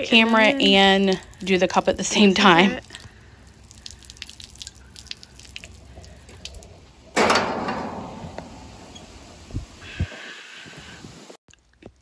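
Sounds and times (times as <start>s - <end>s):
water trickling from hose: 0.0s - 7.2s
water dripping on concrete: 0.6s - 6.8s
short thump: 7.2s - 9.5s.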